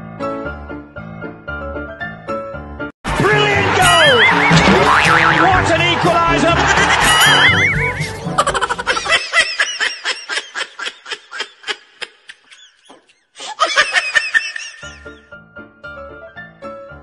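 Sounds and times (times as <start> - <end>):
music: 0.0 - 9.1, 14.8 - 17.0
person laughing: 6.5 - 15.2.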